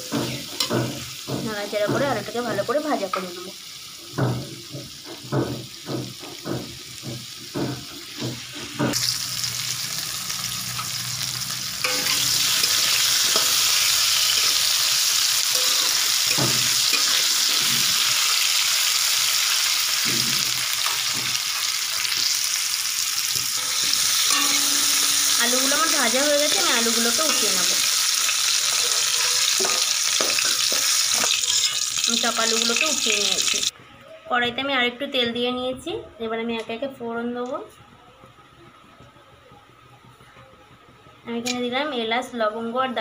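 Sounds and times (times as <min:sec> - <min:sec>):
potatoes sizzling in oil: 0:00.0 - 0:33.7
spatula stirring: 0:11.8 - 0:18.0, 0:23.3 - 0:32.2.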